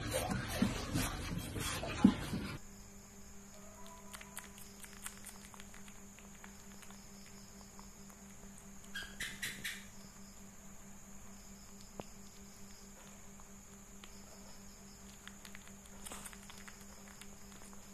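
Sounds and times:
steady low hum: 0.0s - 17.9s
otter grooming clicks and smacks: 3.8s - 9.6s, 11.6s - 17.9s
high chirps: 8.9s - 9.9s.

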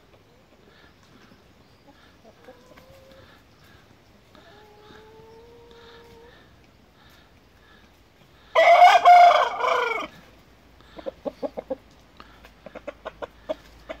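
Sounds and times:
rooster crowing: 8.5s - 10.2s
rooster clucking: 8.6s - 14.0s.

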